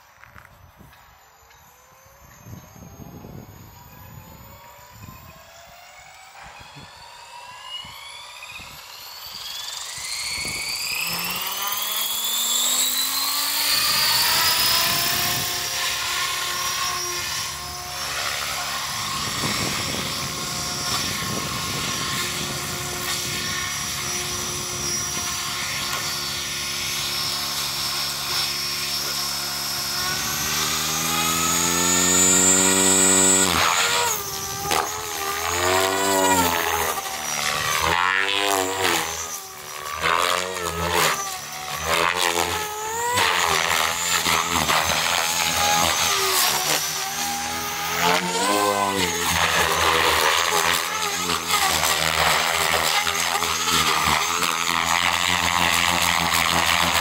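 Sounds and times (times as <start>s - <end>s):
helicopter motor and rotor whining: 0.0s - 57.0s.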